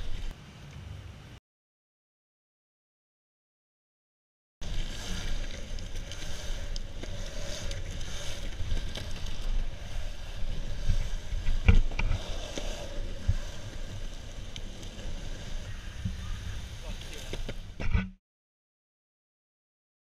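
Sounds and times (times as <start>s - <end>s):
longboard wheels rolling on concrete: 0.0s - 1.4s, 4.6s - 18.0s.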